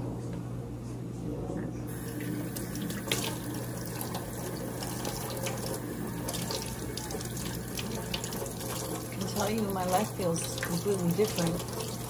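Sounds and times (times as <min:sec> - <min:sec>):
water running into steel sink: 0:01.9 - 0:12.0.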